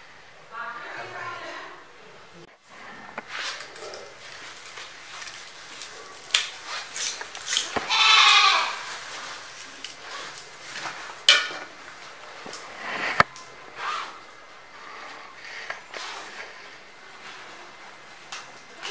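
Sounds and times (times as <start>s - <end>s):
farm animal bleating: 7.8s - 8.9s.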